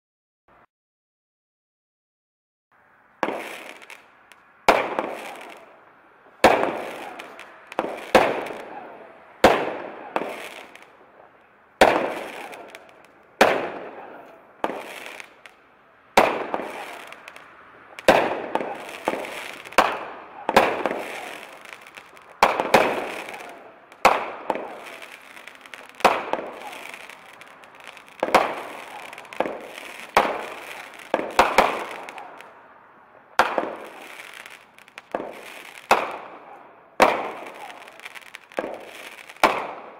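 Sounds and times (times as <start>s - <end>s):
fireworks bangs: 3.1s - 39.9s.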